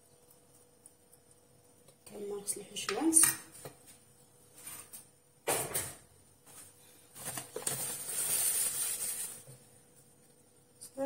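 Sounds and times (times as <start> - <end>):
scratchy rustling: 7.2 - 9.5.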